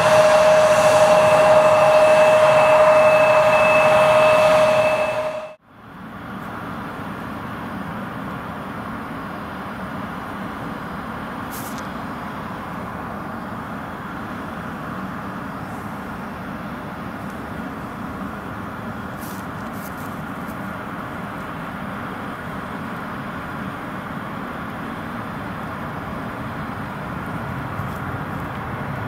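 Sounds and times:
distant jet idling rumble: 0.0 - 5.6
jet engines whining: 0.0 - 5.6.

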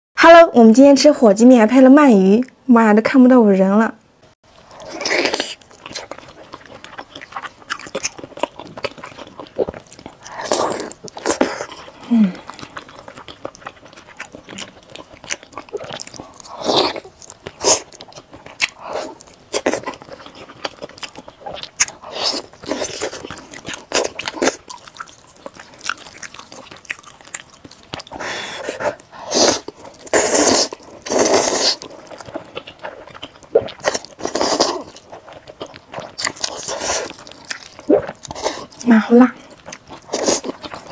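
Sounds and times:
wet sticky chewing: 4.6 - 40.9
loud noodle slurps: 28.2 - 31.8.

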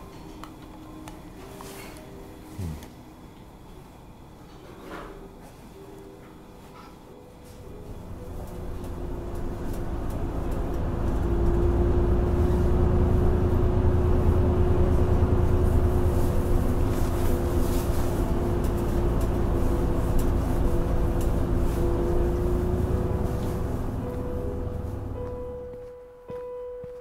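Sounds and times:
vehicle engine low rumble: 7.3 - 25.9.

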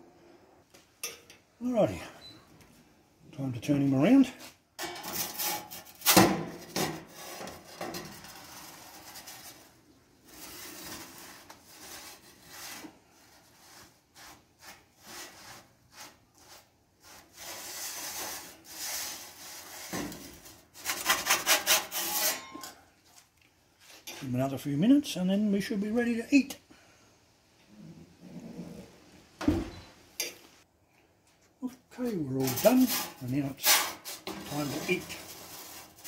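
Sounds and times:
metal peel scraping pizza stone: 5.0 - 22.7, 32.4 - 36.0.

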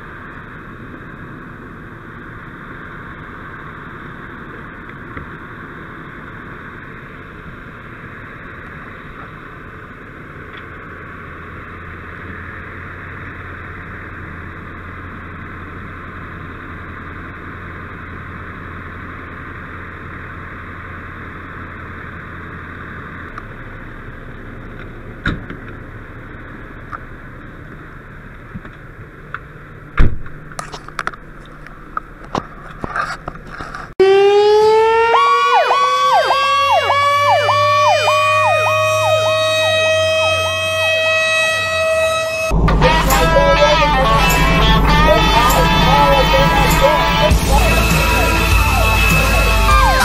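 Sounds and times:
engine drone: 0.0 - 50.0
fire truck siren wailing: 34.0 - 50.0.

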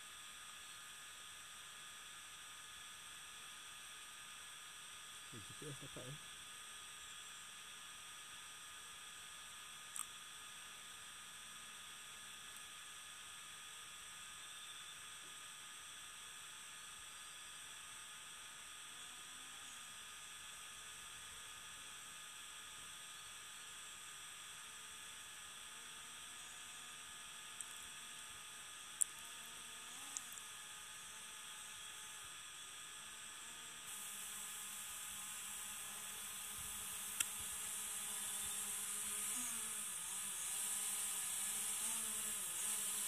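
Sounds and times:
electronic hum: 0.0 - 43.0
faint hiss: 5.3 - 6.2, 33.8 - 43.0.

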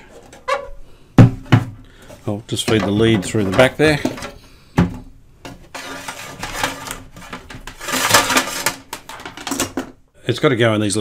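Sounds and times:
cabinet scraping on wooden bench: 5.6 - 8.8.

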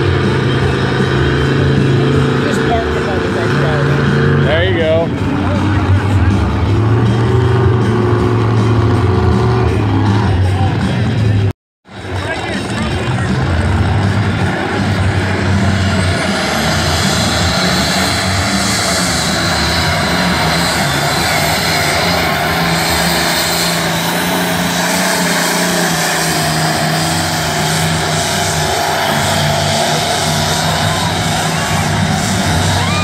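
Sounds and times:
diesel tractor engine under load: 0.0 - 33.0
high whine: 12.1 - 33.0.

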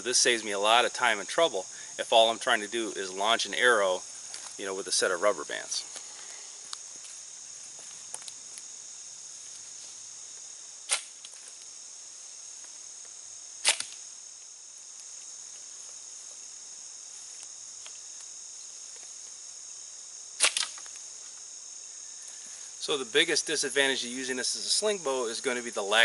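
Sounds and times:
crickets chirping: 0.0 - 26.0
slingshot bands snapping: 10.9 - 11.4, 13.6 - 14.0, 20.4 - 21.0.

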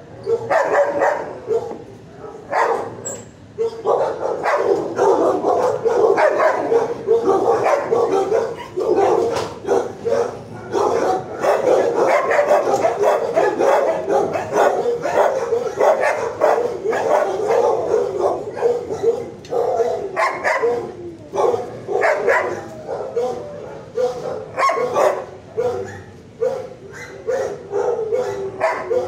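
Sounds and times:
dogs barking: 0.0 - 29.0.

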